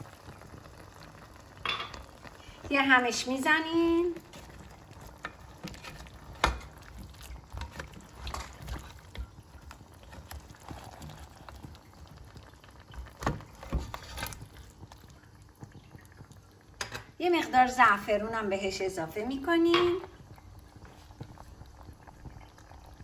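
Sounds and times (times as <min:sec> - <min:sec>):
stew bubbling softly: 0:00.0 - 0:23.0
spatula knocking and scraping pot: 0:04.3 - 0:11.8.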